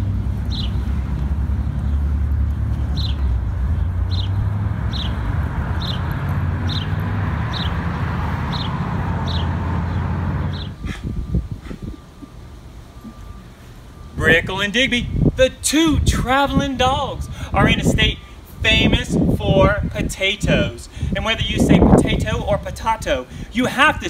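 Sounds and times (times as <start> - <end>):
road traffic rumble: 0.0 - 24.0
bird chirping: 0.4 - 0.9, 1.5 - 14.1.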